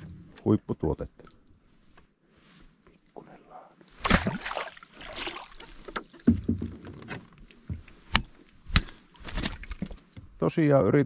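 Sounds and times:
water splashing: 4.0s - 6.6s
knocks and thuds in a rowboat: 5.3s - 10.4s.

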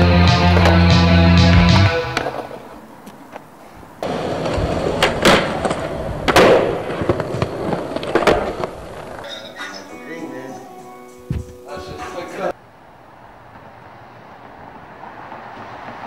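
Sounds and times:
skateboard wheels rolling: 0.0s - 9.9s, 13.0s - 16.0s
skateboard tail clacking: 0.2s - 1.1s, 1.8s - 9.8s.

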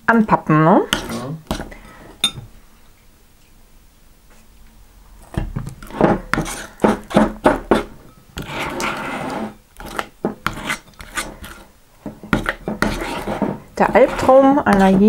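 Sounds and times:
metal spoon scraping glass bowl: 5.8s - 11.7s, 12.3s - 15.0s.

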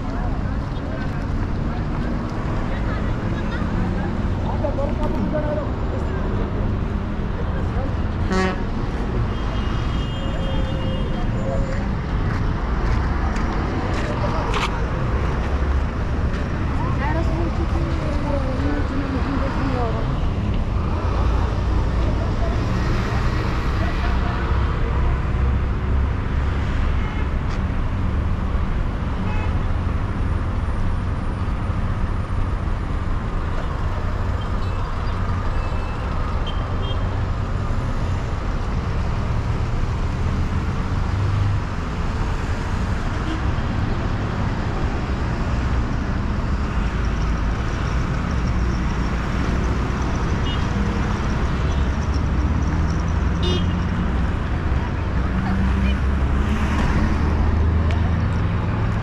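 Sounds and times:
traffic rumble: 0.0s - 59.0s.

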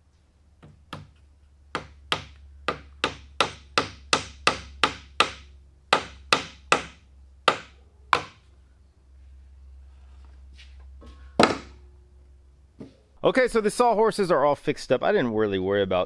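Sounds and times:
hammer striking wooden wedge: 0.6s - 8.5s, 11.4s - 11.8s.

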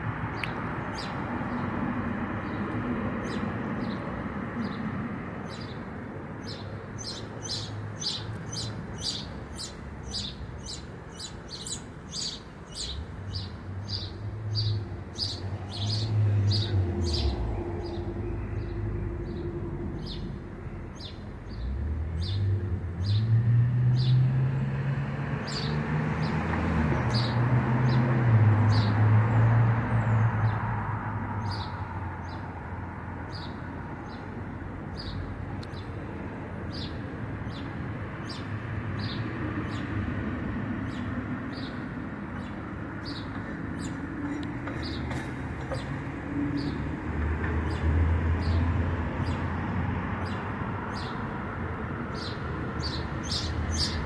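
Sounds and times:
small bird chirping: 6.4s - 18.5s.

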